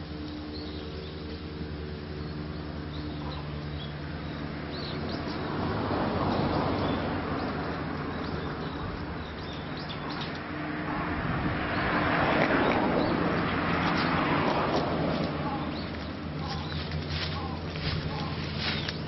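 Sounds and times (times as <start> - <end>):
small birds chirping: 0.0 - 10.8, 11.6 - 19.0
steady low hum: 0.0 - 19.0
broad rushing noise: 3.3 - 19.0.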